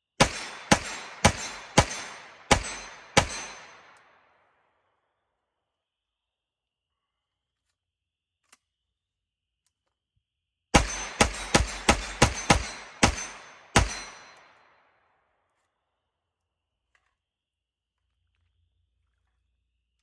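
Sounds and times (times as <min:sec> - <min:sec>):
gunshots with echo: 0:00.2 - 0:04.5, 0:10.8 - 0:15.0.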